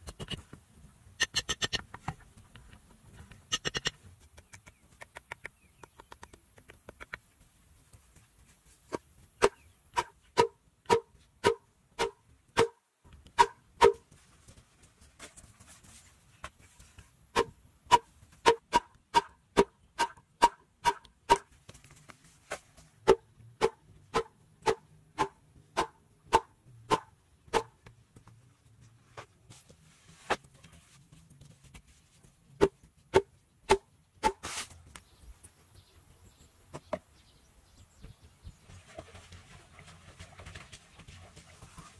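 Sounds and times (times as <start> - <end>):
bamboo mallet knocking wooden stake: 8.9 - 14.0, 17.4 - 21.5.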